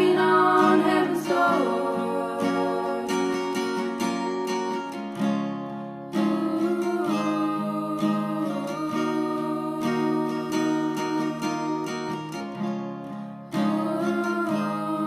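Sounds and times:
strummed acoustic guitar chords: 0.0 - 15.0.

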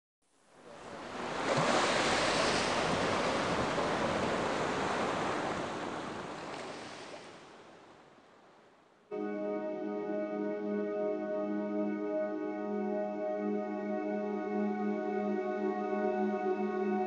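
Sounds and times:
waves breaking: 0.6 - 8.8.

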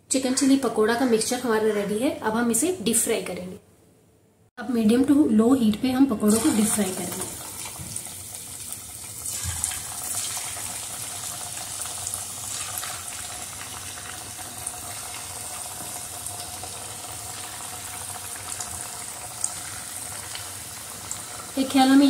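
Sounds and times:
sharp oil crackles: 6.3 - 21.7
bubbling sizzle of deep-frying: 6.3 - 22.0.

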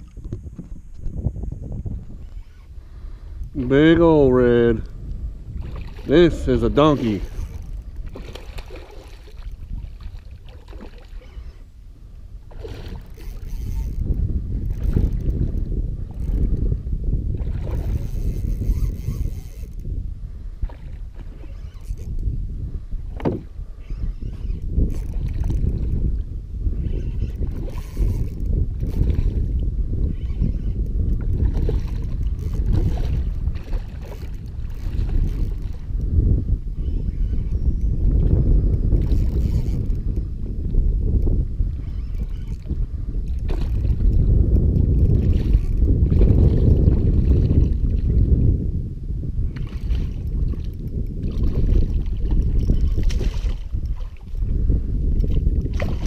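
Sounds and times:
water sloshing against hull: 0.0 - 56.0
wind rumble on microphone: 0.0 - 56.0
fish splashing: 5.6 - 11.7, 12.4 - 14.1.

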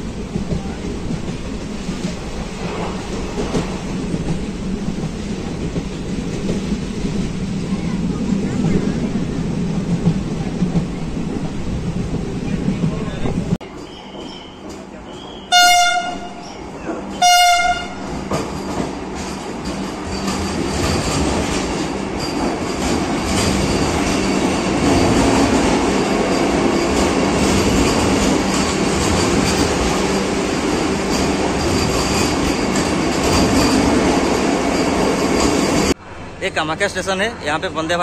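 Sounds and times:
train running noise: 0.0 - 38.0
train horn blast: 15.5 - 16.5, 17.2 - 18.2.

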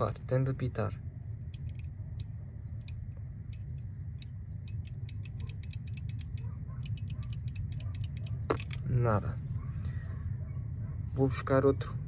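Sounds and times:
low steady rumble: 0.0 - 12.0
faint high-pitched ticking: 1.5 - 8.4.

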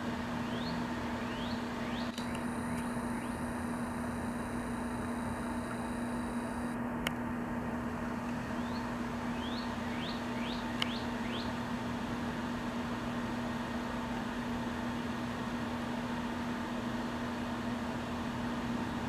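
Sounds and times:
steady mechanical hum: 0.0 - 19.0
sharp clicks: 2.1 - 3.4.

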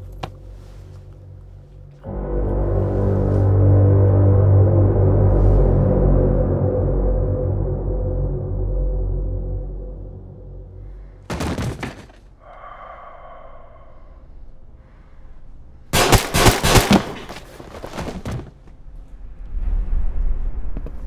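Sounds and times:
handgun shots: 16.0 - 17.3.

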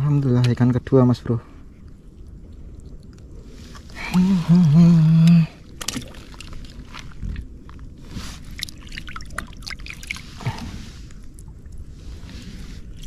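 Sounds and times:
small water drips: 1.8 - 11.9
hands splashing in water: 5.3 - 7.8, 8.4 - 10.7.

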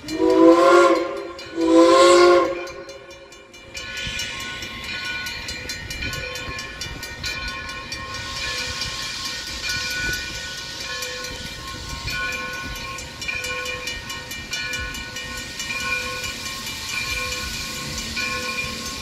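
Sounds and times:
steam whistle blast: 0.0 - 3.3
steam hiss: 0.0 - 19.0
steam locomotive working: 0.0 - 19.0.

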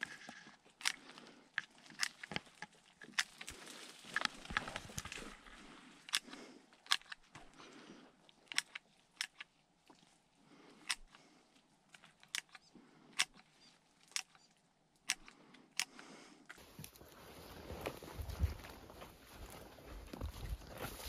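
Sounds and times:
secateurs snipping twigs: 0.8 - 7.5
brush rustling and crunching: 1.7 - 6.2, 16.6 - 21.0.

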